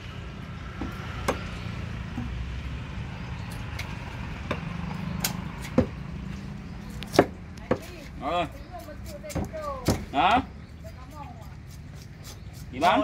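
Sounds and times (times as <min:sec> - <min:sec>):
low motor rumble: 0:00.0 - 0:08.8
cleaver chopping on wooden block: 0:07.0 - 0:07.9.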